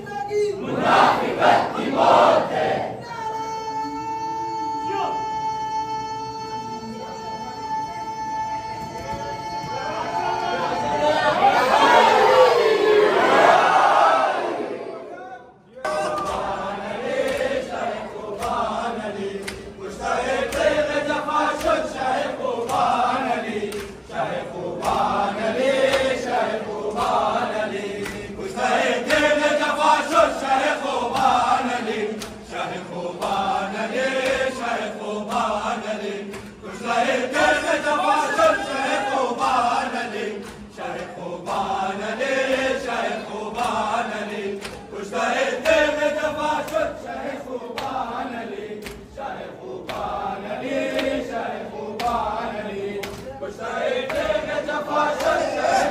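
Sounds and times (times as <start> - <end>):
men chanting a mourning lament: 15.8 - 55.9.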